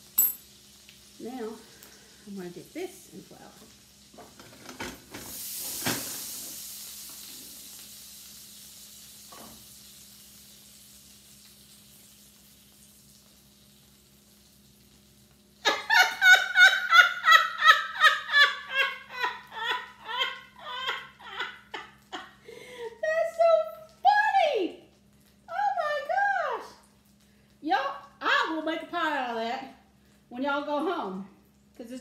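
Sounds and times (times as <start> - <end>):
pie sizzling in skillet: 0.0 - 32.0
woman laughing loudly: 15.6 - 23.0.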